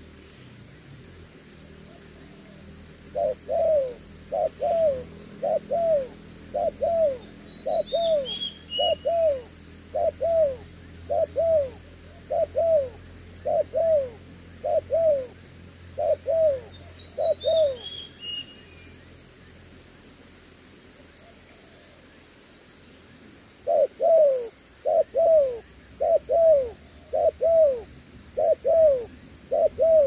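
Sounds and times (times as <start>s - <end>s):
dove cooing: 1.9s - 15.4s, 16.0s - 17.9s, 23.6s - 30.0s.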